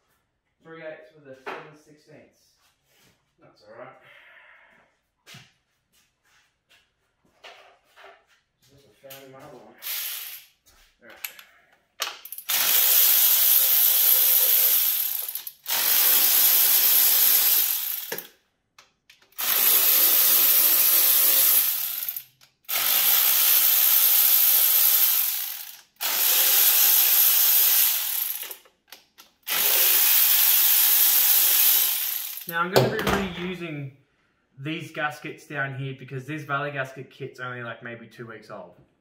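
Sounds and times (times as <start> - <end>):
electric ratchet spinning bolts: 9.8 - 10.5, 12.1 - 18.3, 19.3 - 28.7, 29.4 - 32.5.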